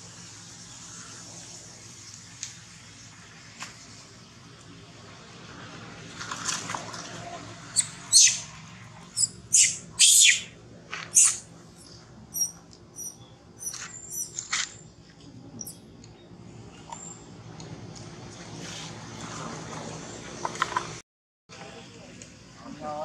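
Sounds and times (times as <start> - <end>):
baby monkey squealing: 7.8 - 8.5, 9.2 - 14.4.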